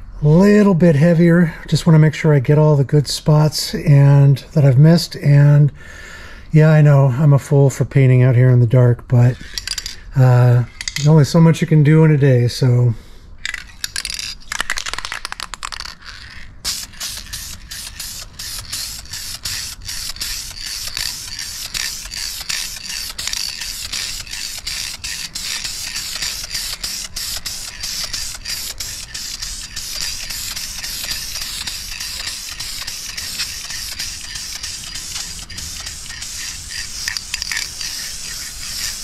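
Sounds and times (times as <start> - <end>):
spray can rattling: 10.8 - 11.1, 13.4 - 39.0
spray paint can hissing: 13.8 - 39.0.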